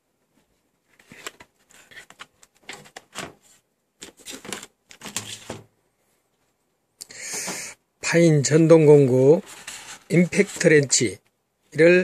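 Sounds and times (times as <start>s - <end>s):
papers and plastic rustling: 0.8s - 5.7s, 9.3s - 11.2s.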